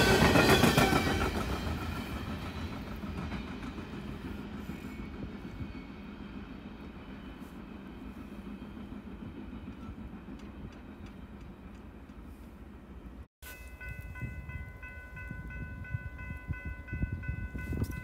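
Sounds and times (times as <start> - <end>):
train wheels rumbling on rails: 0.0 - 18.0.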